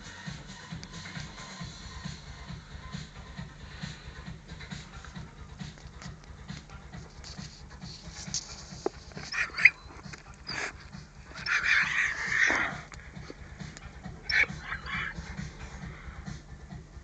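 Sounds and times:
faint music beat: 0.0 - 17.0
dog whimpering and yelping: 9.2 - 13.3, 14.0 - 15.5.

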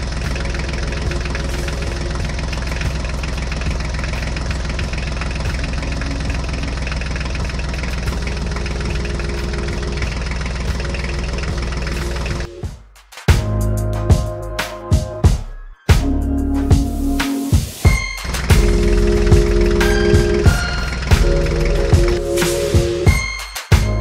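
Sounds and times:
diesel tractor engine knocking: 0.0 - 12.5, 18.3 - 22.2.

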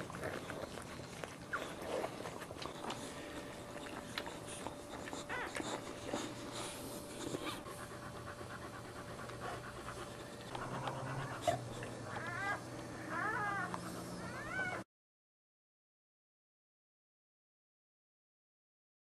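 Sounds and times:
dog panting: 0.0 - 14.8
puppies crying: 0.0 - 14.9.

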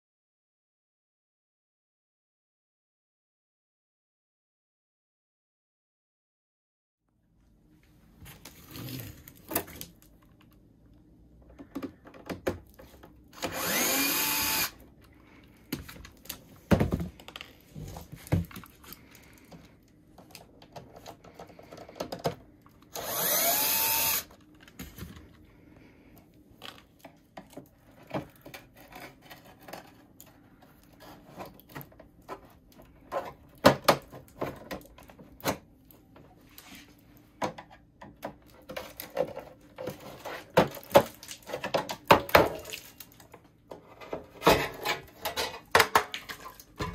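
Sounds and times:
cordless drill whining: 13.4 - 14.8, 22.9 - 24.3.

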